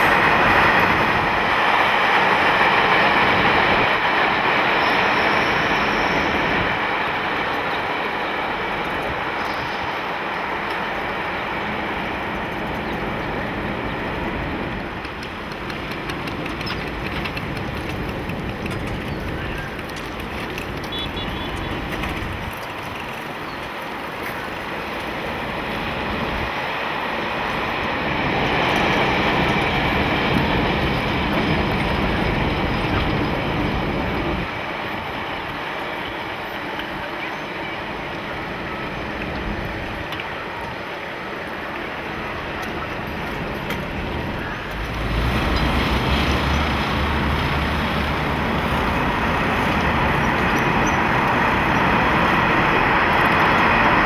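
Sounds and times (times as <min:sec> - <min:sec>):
traffic noise: 0:00.0 - 0:54.0
train noise: 0:00.0 - 0:54.0.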